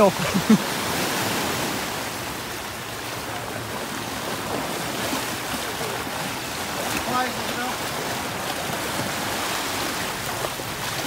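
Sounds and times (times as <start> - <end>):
small waves washing onto shore: 0.0 - 11.0.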